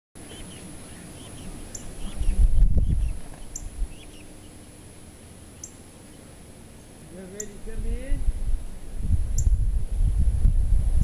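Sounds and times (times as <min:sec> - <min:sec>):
chicks peeping: 0:00.2 - 0:04.9.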